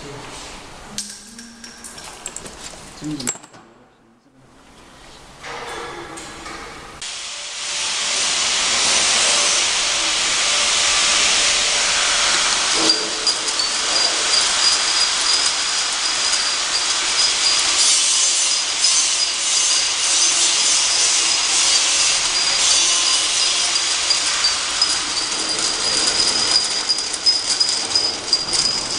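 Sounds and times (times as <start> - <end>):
steady high whine: 0.6 - 4.6
labelling machine running: 7.0 - 28.9.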